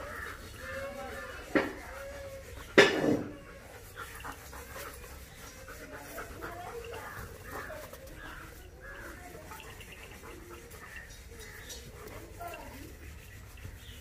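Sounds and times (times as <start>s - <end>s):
dog sniffing: 0.0s - 14.0s
puppy panting: 0.0s - 14.0s.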